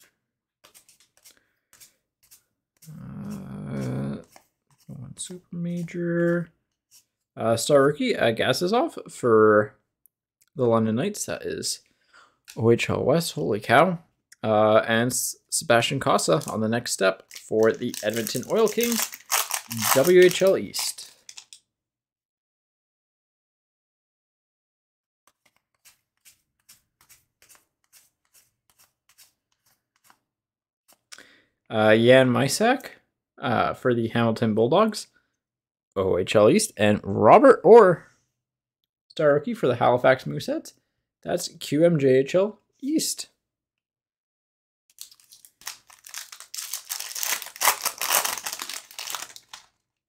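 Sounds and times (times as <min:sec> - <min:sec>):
trading cards flicking and slapping: 0:00.0 - 0:03.0, 0:17.2 - 0:21.6, 0:25.3 - 0:30.3
foil wrapper crinkling: 0:17.2 - 0:21.0, 0:44.9 - 0:49.7.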